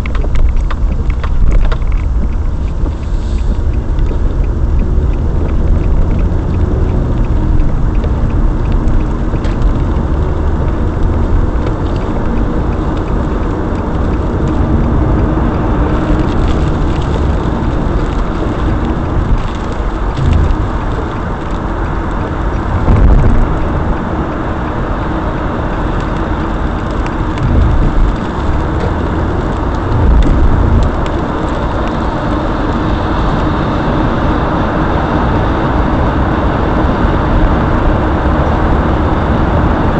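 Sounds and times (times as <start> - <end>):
car road noise: 0.0 - 39.9.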